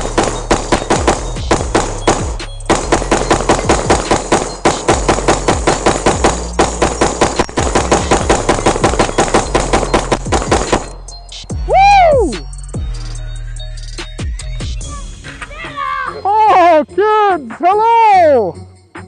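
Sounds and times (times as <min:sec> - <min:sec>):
rifle firing rapidly: 0:00.0 - 0:11.0
background music with bass: 0:00.0 - 0:19.0.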